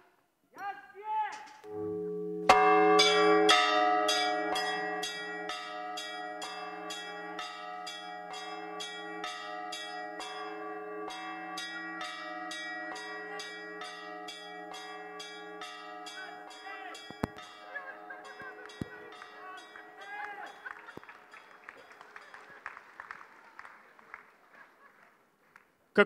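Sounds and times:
church bells pealing: 0:01.7 - 0:22.4.

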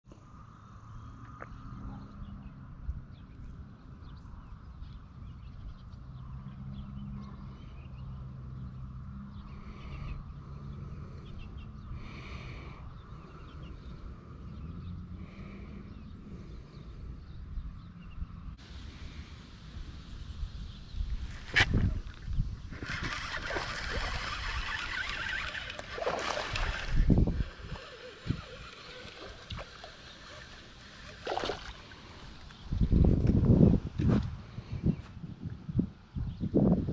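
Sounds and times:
birds chirping: 0:00.4 - 0:36.8
fishing reel whirring: 0:22.6 - 0:31.3
rod and reel knocking: 0:22.7 - 0:31.8.

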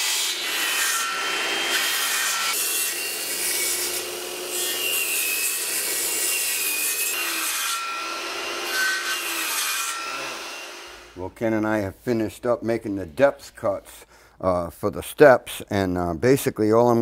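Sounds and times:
circular saws cutting wood: 0:00.0 - 0:11.2.

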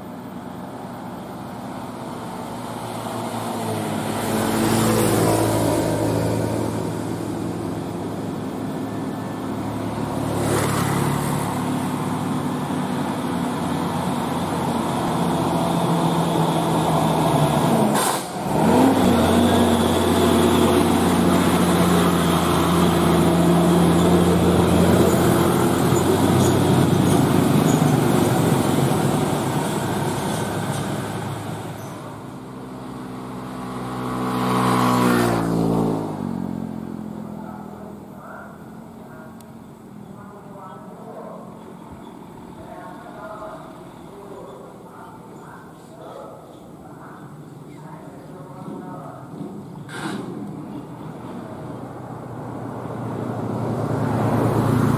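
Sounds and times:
truck diesel engine running loud: 0:00.0 - 0:39.9.

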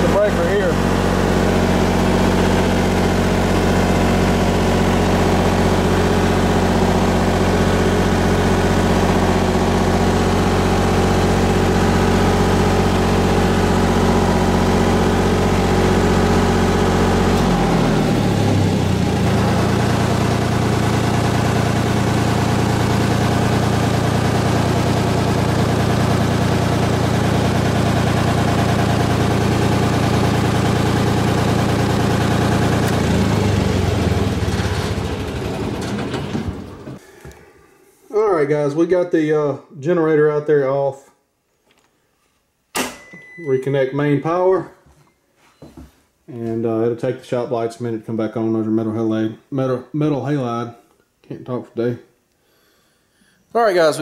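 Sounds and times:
diesel generator engine running: 0:00.0 - 0:37.4.

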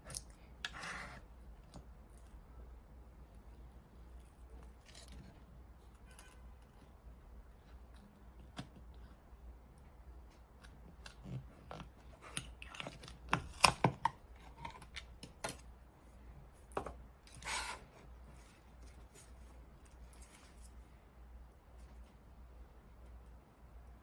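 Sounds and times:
short scrape: 0:17.3 - 0:18.1.

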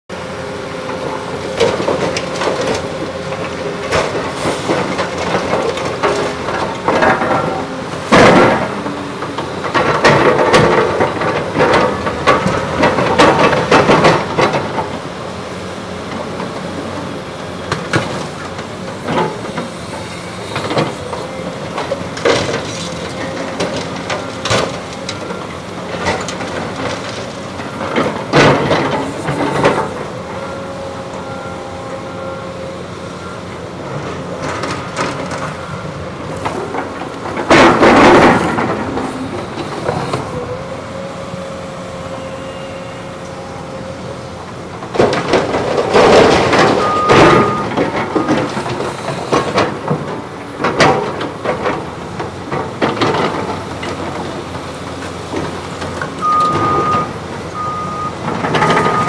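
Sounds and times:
diesel engines running: 0:00.1 - 0:59.0
metallic clanks and rubble crashes: 0:03.4 - 0:15.0, 0:36.4 - 0:40.7, 0:44.8 - 0:54.4.

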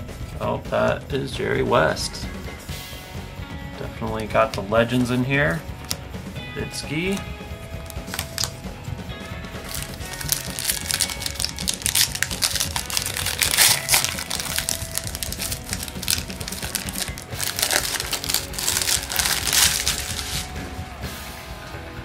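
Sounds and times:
quiet background music: 0:00.0 - 0:22.0
wrapper tearing and crinkling: 0:07.8 - 0:08.6, 0:09.6 - 0:20.6.

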